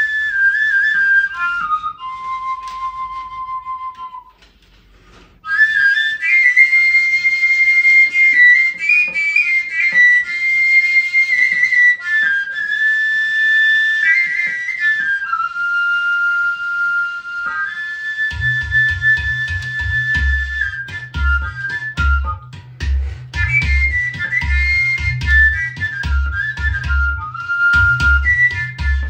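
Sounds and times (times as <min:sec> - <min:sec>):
wooden flute melody: 0:00.0 - 0:29.0.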